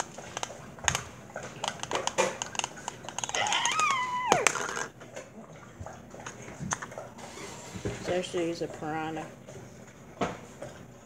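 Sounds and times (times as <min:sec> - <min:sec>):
fidget spinner clicks and taps: 0:00.0 - 0:04.9.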